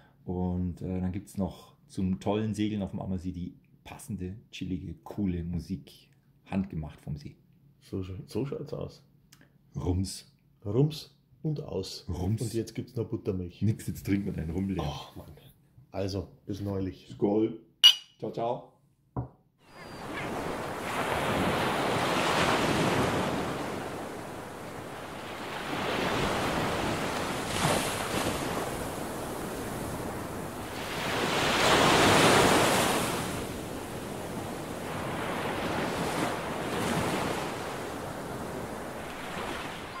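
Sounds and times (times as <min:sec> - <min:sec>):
waves washing in: 0:19.7 - 0:40.0.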